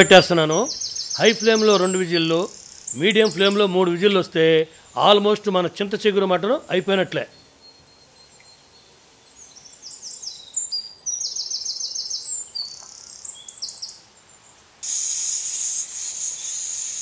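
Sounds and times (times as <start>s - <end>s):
small bird chirping: 0.0s - 3.8s, 7.3s - 17.0s
pressure cooker whistle hissing: 14.8s - 17.0s.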